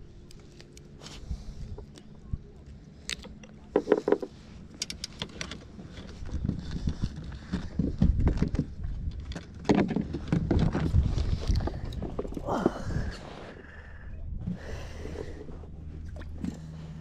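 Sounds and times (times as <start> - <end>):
low uneven rumble: 0.0 - 17.0
fishing gear clicks and knocks: 1.7 - 13.0.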